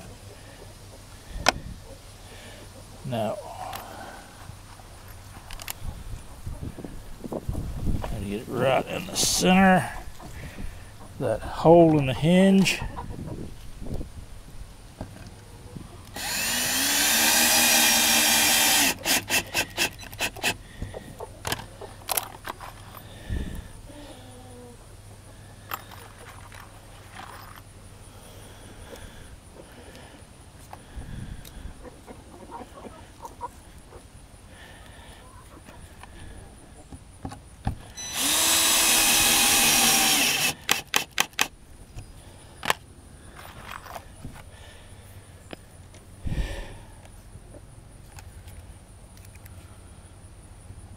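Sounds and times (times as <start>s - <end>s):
cordless drill motor humming: 16.1s - 20.6s, 37.9s - 41.5s
drill clutch clicks: 16.1s - 20.6s, 38.1s - 41.6s.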